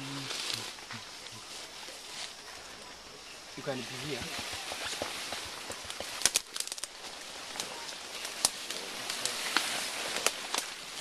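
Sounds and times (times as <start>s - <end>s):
steady hiss: 0.0s - 11.0s
fibrous stems cracking and snapping: 5.9s - 10.8s.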